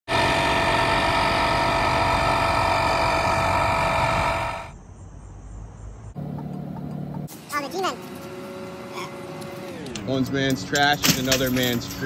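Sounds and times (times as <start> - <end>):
loud mechanical drone: 0.1 - 4.8, 7.3 - 10.5.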